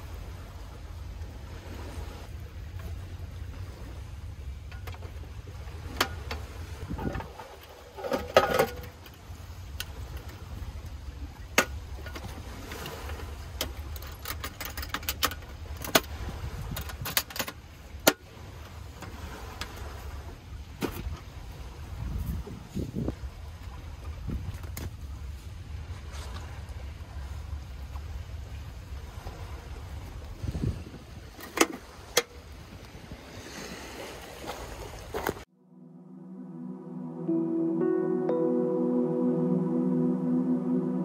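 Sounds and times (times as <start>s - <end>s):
wind rumble on microphone: 0.0s - 8.0s, 15.6s - 17.3s, 18.3s - 33.9s
metal lunch box clicks and clacks: 14.0s - 16.1s, 16.8s - 18.2s.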